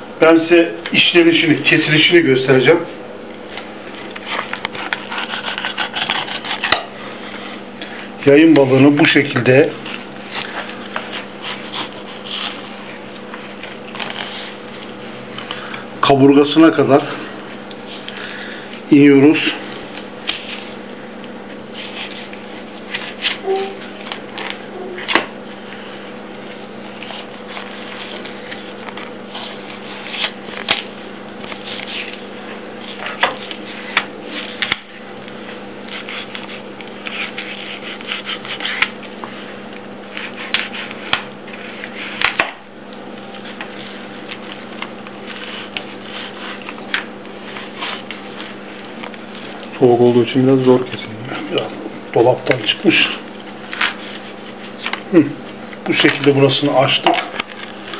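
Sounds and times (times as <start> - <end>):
steady low hum: 0.0 - 57.9
knife scraping fish on cutting board: 4.3 - 6.9.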